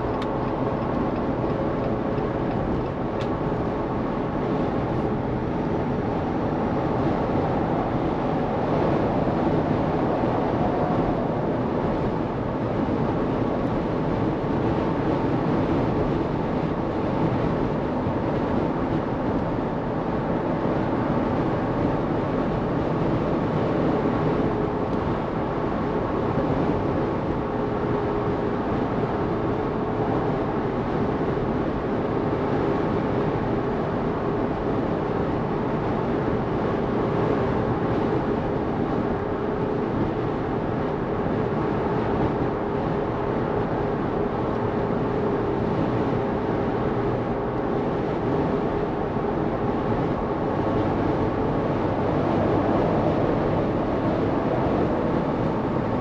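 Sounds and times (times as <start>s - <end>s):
car engine running: 0.0s - 21.9s
road tyre and wind noise: 0.0s - 56.0s.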